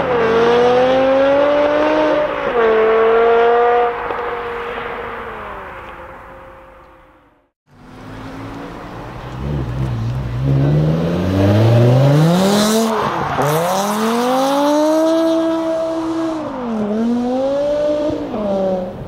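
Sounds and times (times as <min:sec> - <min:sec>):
sports car engine revving: 0:08.0 - 0:18.9.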